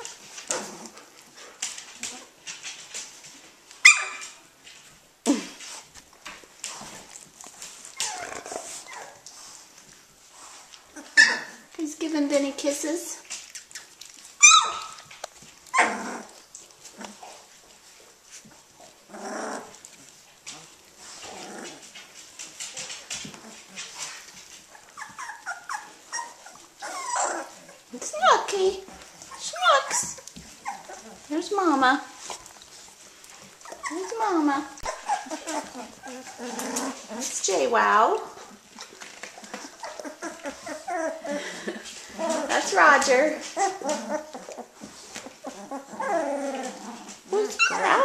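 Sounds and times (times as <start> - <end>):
puppies squeaking: 3.8 - 4.4, 7.8 - 9.3, 10.9 - 11.7, 13.4 - 16.4, 22.8 - 48.0
puppy whining: 3.8 - 4.4, 6.8 - 9.4, 10.9 - 11.8, 13.4 - 17.5, 18.4 - 48.0
puppy yips: 3.8 - 4.4, 8.0 - 9.2, 11.0 - 11.6, 13.6 - 15.1, 24.8 - 27.5, 34.8 - 36.6, 47.4 - 48.0
paws scuffling on fabric: 4.6 - 48.0
puppy grunting: 8.0 - 9.2, 15.7 - 17.4, 19.0 - 22.2, 23.2 - 31.5, 33.4 - 48.0.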